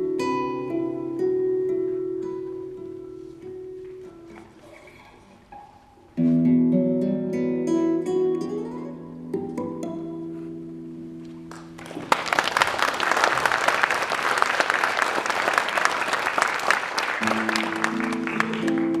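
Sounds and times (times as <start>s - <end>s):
large crowd applauding: 11.5s - 19.0s.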